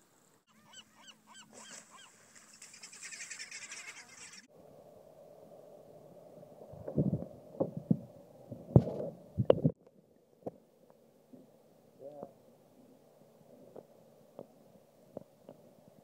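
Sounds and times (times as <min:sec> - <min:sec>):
faint low hum: 0:00.0 - 0:16.0
muffled thumps and knocks: 0:06.8 - 0:09.8.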